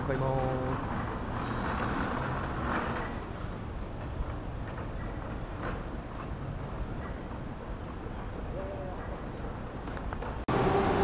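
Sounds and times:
road traffic noise: 0.0s - 11.0s
vehicle passing: 10.5s - 11.0s.

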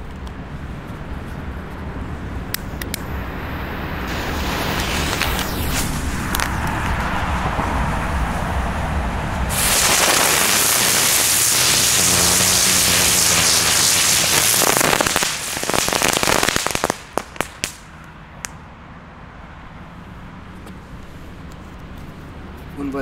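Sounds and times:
fireworks crackling: 2.7s - 8.2s, 9.5s - 17.9s
fireworks hissing: 3.0s - 7.7s, 9.5s - 17.8s
sharp firework pops: 4.0s - 7.8s, 9.5s - 18.6s.

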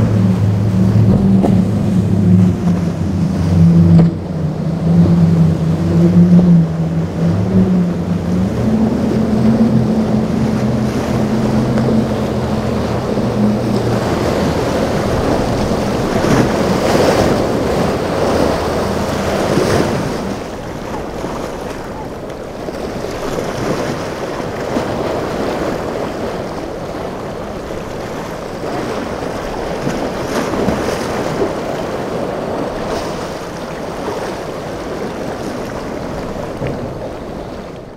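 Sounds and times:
boat engine droning: 0.0s - 37.9s
waves and surf rushing: 0.0s - 37.9s
wind on microphone: 0.0s - 37.9s.

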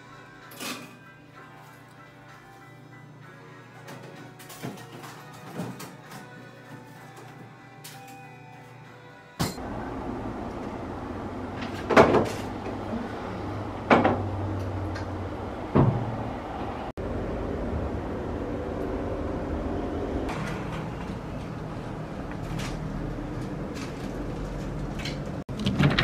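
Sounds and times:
elevator hum: 9.6s - 25.6s.

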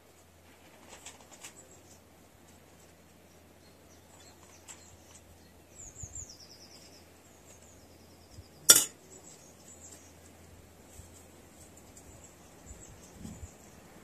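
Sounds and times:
small birds chirping: 0.1s - 14.0s
metal clinking on table: 8.7s - 8.9s.

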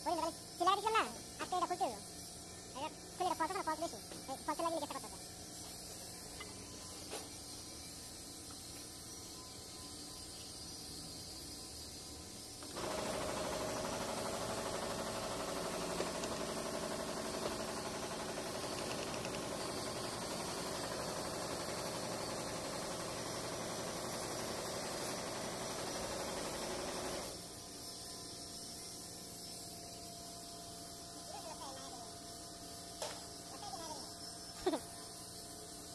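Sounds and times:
hissing workshop background noise: 0.0s - 35.9s.

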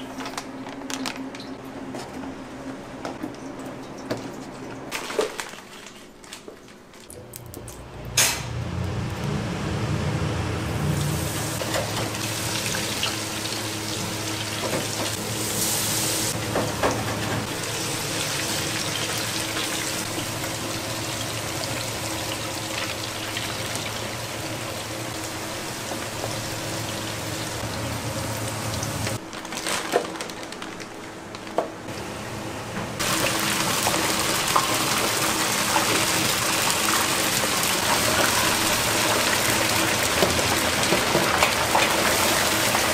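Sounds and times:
tap water running: 10.9s - 29.2s, 33.0s - 42.9s.

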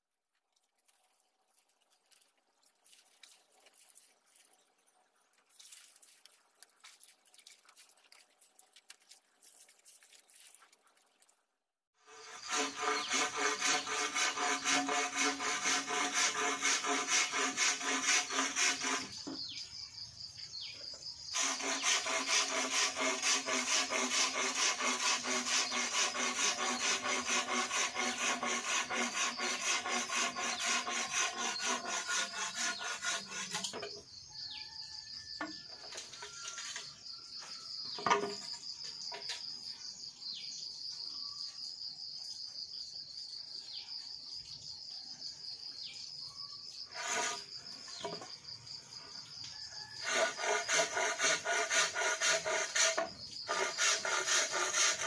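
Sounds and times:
hand tool rasping bamboo: 12.0s - 19.4s, 21.4s - 34.0s, 46.9s - 48.2s, 50.0s - 55.0s
insects buzzing: 44.9s - 55.0s.

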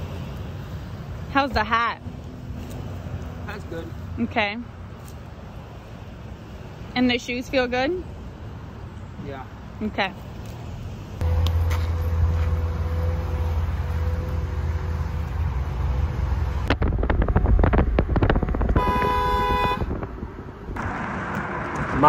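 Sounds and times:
rough rumbling of traffic: 0.0s - 22.0s
vehicle hum: 0.0s - 22.0s
car horn: 18.7s - 19.9s.

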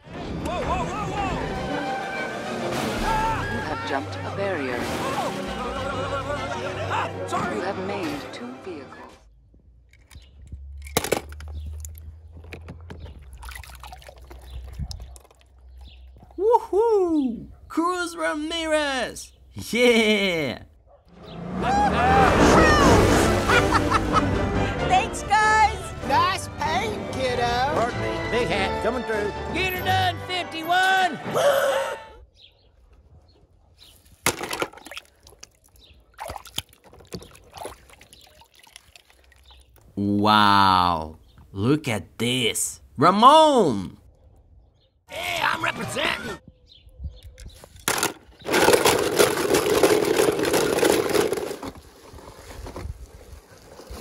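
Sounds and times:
water splashing and dripping: 4.6s - 5.8s, 13.0s - 16.2s, 34.6s - 39.9s
toy cars clicking: 47.8s - 51.7s.

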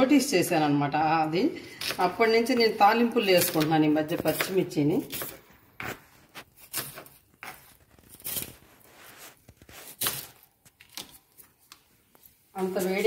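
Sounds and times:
knife slicing onions on board: 3.3s - 8.6s, 9.8s - 10.4s.

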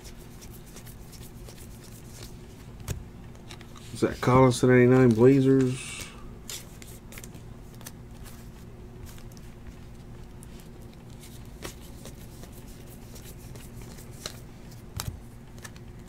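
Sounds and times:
steady low hum: 0.0s - 16.0s
cards sliding while flipped: 3.5s - 9.5s, 10.5s - 15.8s.

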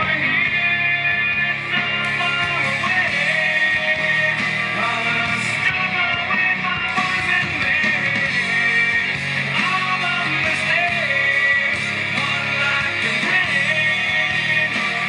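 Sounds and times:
song with voice and guitar: 0.0s - 15.0s.

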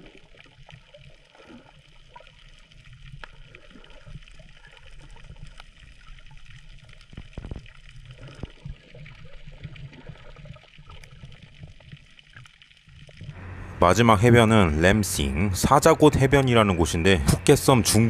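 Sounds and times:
water gushing: 0.0s - 13.4s
water gurgling and sloshing: 0.0s - 18.0s.

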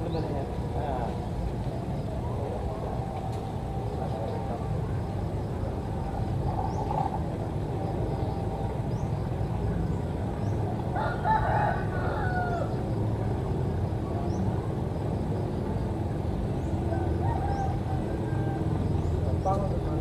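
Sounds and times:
low background rumble: 0.0s - 20.0s
rooster crowing: 11.0s - 12.8s, 16.9s - 18.9s.

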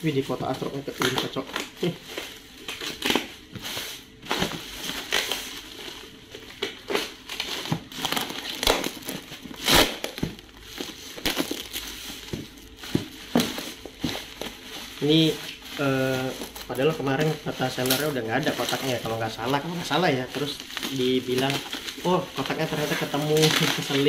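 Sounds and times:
plastic wrapping crinkling: 0.0s - 24.0s.

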